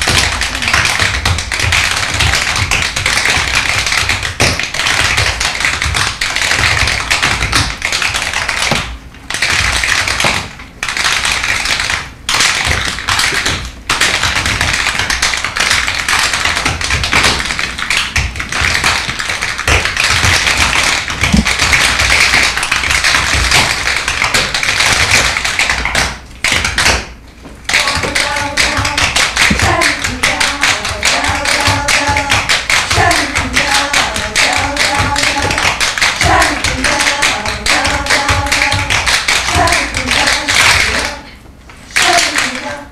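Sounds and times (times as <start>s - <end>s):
tap shoes on wooden stage: 0.0s - 41.3s.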